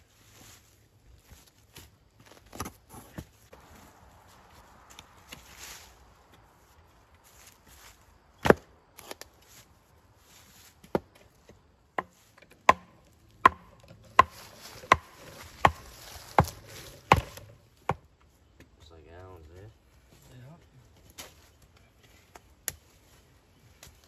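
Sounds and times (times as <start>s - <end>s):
hatchet striking wooden post: 12.0s - 18.0s.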